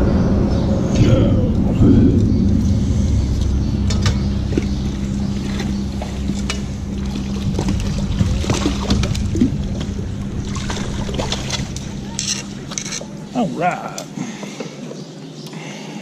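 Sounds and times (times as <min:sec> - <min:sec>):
steady low hum: 0:00.0 - 0:15.2.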